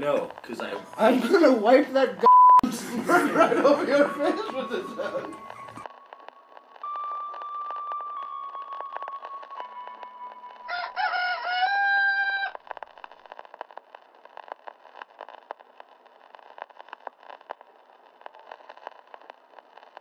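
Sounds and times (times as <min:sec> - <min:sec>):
faint crackle: 0:00.0 - 0:20.0
rooster crowing: 0:10.7 - 0:12.6.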